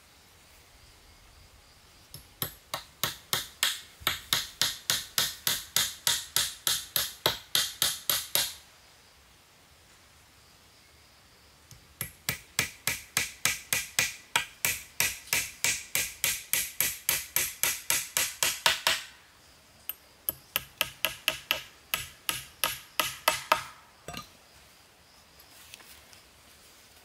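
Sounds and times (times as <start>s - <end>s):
hammer strikes: 12.0s - 19.1s, 20.3s - 24.2s.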